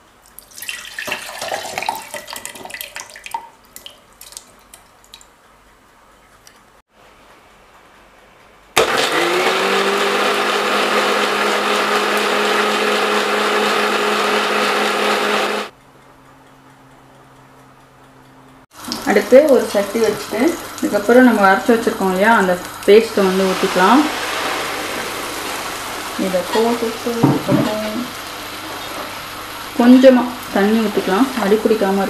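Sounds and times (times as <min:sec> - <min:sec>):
light clicks and splashes: 0:00.2 - 0:05.5, 0:06.2 - 0:06.7
mixer grinder motor whirring: 0:08.8 - 0:15.7, 0:18.9 - 0:31.5.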